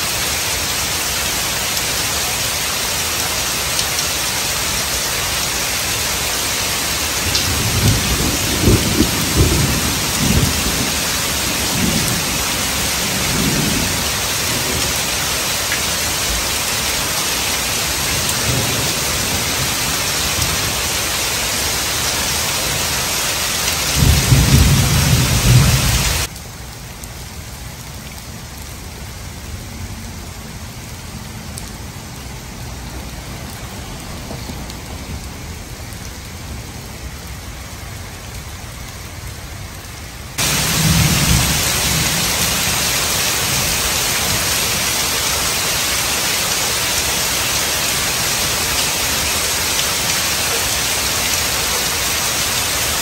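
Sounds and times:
heavy rain on pavement: 0.0s - 53.0s
thunder rumbling: 7.2s - 15.5s, 23.8s - 26.3s, 40.4s - 44.6s.

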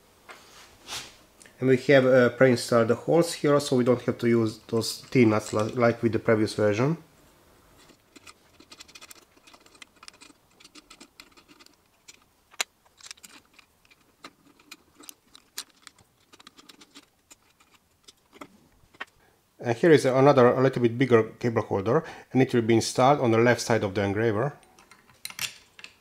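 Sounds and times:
hex key turning screws: 7.8s - 19.1s.

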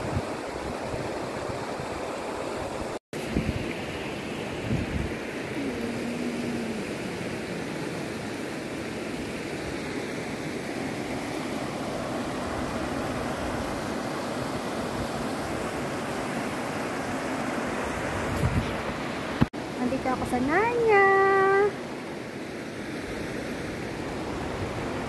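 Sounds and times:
river rushing over stones: 0.3s - 19.4s.

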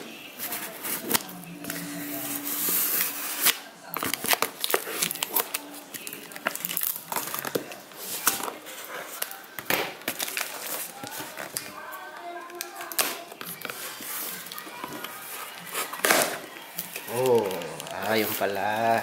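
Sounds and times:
plastic crinkling: 0.2s - 19.0s
scissors snipping plastic and tape: 3.4s - 8.5s, 12.4s - 13.8s.

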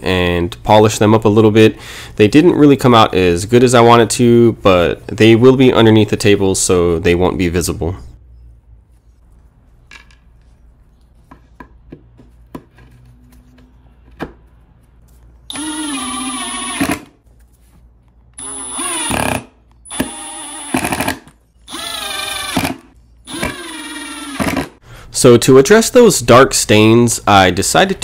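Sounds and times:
cordless drill driving screws: 15.5s - 17.1s, 18.4s - 24.8s.

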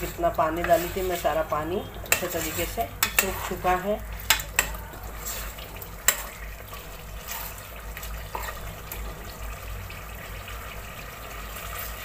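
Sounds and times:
spoon stirring thick gravy: 0.0s - 9.4s
spoon clinking against pot: 2.0s - 3.6s, 4.2s - 6.4s.

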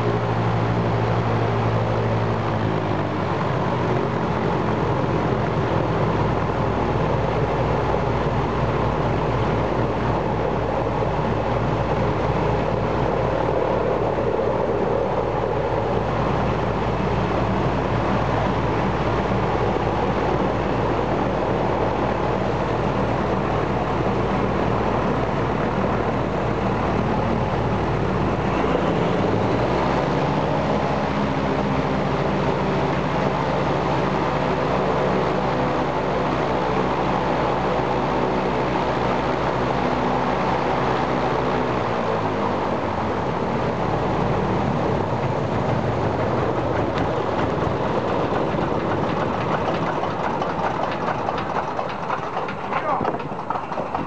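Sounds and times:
radial piston engine running: 44.2s - 54.0s.

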